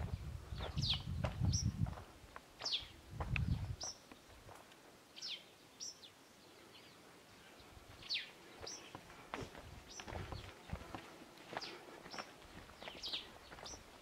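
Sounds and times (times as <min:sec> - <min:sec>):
bird chirping: 0:00.2 - 0:01.8, 0:02.6 - 0:04.4, 0:05.1 - 0:09.0, 0:09.8 - 0:10.9, 0:11.6 - 0:14.0.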